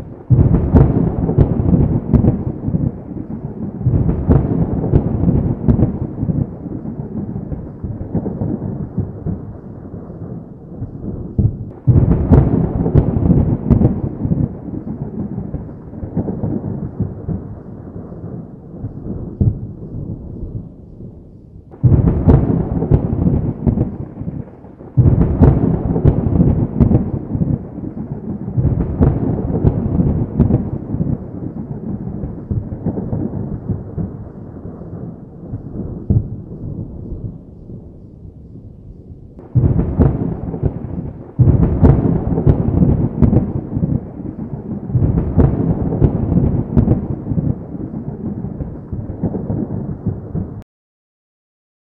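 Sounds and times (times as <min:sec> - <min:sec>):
rolling thunder: 0:00.0 - 0:50.6
thunder peals: 0:00.0 - 0:50.6.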